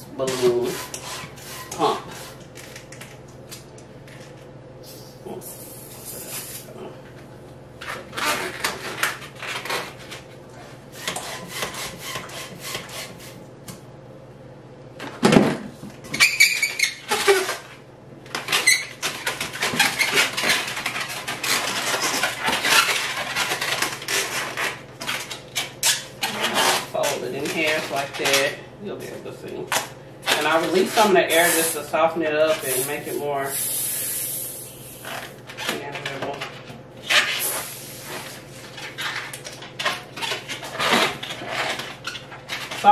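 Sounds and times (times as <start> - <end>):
balloon squeaking and rubbing: 8.1 - 9.9, 16.2 - 17.6, 18.5 - 20.6, 25.8 - 27.0, 37.0 - 39.1, 40.2 - 42.2.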